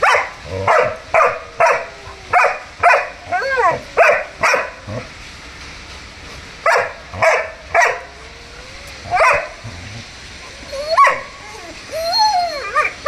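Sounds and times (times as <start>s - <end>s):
dog barking: 0.0s - 4.8s, 6.6s - 8.2s, 9.0s - 9.8s, 11.0s - 11.3s.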